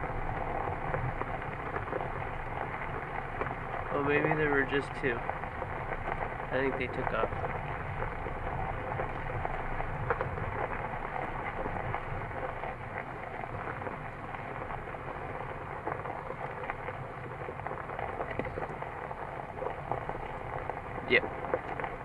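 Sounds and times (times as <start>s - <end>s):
crackling hiss: 0.0s - 22.0s
engine running in a cabin: 0.0s - 22.0s
small ticks: 0.2s - 3.9s, 5.0s - 22.0s.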